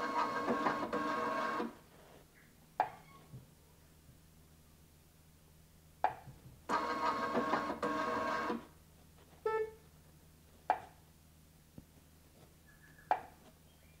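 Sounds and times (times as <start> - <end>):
embroidery machine motors whirring: 6.7 - 8.6.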